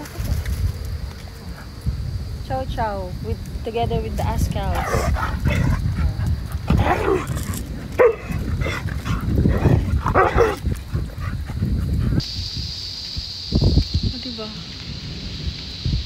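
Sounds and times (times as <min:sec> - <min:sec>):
low rumble: 0:00.0 - 0:16.0
dogs barking and yipping: 0:04.6 - 0:12.2.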